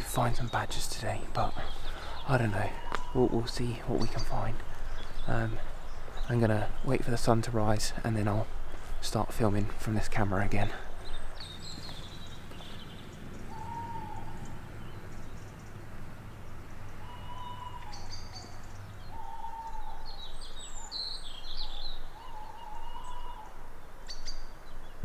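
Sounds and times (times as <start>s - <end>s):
songbird chirps: 0.0s - 25.0s
bird calling mid-pitched notes: 2.7s - 4.4s, 13.4s - 14.6s, 17.0s - 20.2s.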